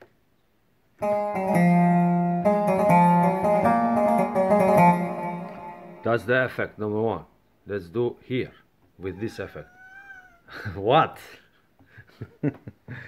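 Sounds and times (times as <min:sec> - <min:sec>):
keyboard playing plucked lute notes: 0:01.0 - 0:06.5.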